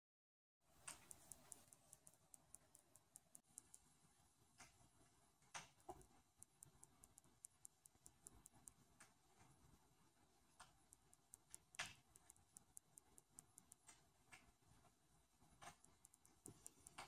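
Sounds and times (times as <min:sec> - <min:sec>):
soft clicks: 0:00.8 - 0:03.9, 0:05.4 - 0:09.6, 0:10.6 - 0:14.6, 0:15.6 - 0:17.0.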